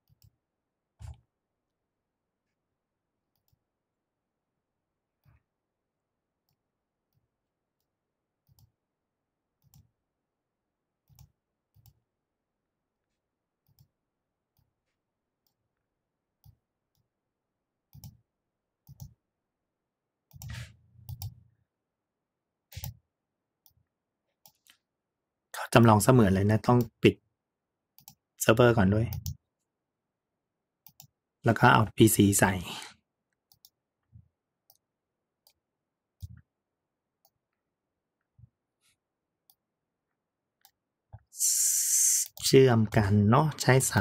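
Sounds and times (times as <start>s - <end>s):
computer mouse clicks: 0.0s - 0.4s, 3.3s - 3.6s, 6.4s - 8.7s, 9.6s - 9.9s, 11.1s - 12.0s, 13.6s - 13.9s, 17.9s - 18.2s, 18.8s - 19.2s, 20.3s - 21.4s, 22.7s - 23.0s, 28.0s - 28.2s, 29.1s - 29.4s, 30.8s - 31.2s, 33.3s - 33.8s, 34.6s - 35.6s, 39.4s - 39.6s, 40.6s - 41.3s.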